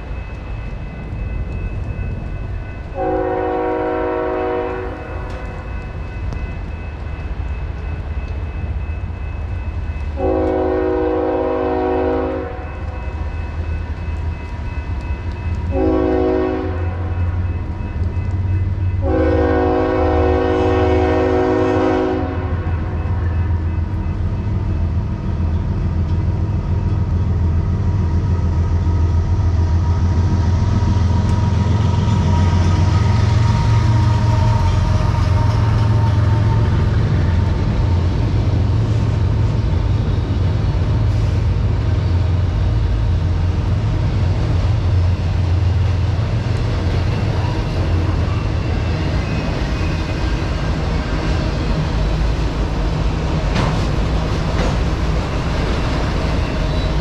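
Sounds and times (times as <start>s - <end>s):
locomotive engine rumble: 0.0s - 57.0s
locomotive horn blasts: 3.0s - 5.5s, 10.2s - 12.8s, 15.7s - 17.1s, 19.0s - 23.1s.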